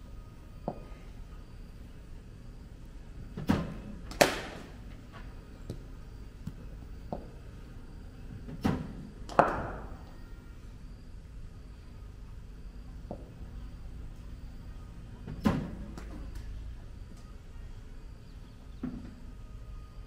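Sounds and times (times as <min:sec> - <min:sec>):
bat hitting cricket ball: 0:03.5 - 0:04.8.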